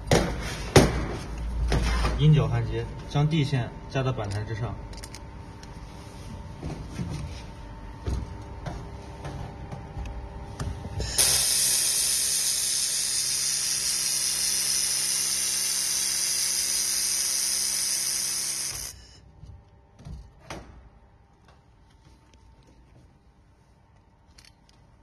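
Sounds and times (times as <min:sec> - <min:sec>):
low machine hum: 0:01.0 - 0:25.0
laser welder hissing: 0:11.0 - 0:19.2.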